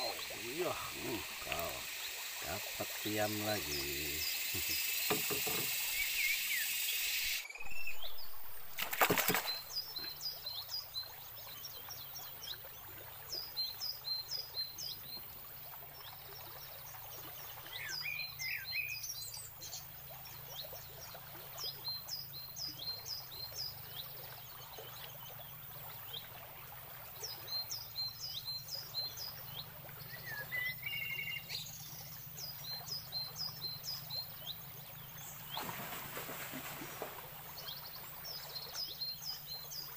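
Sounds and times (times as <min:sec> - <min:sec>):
lower bird call: 0:00.0 - 0:10.2
birds chirping: 0:00.0 - 0:12.7, 0:16.0 - 0:26.2, 0:27.2 - 0:39.9
sharp knock: 0:05.1 - 0:05.7.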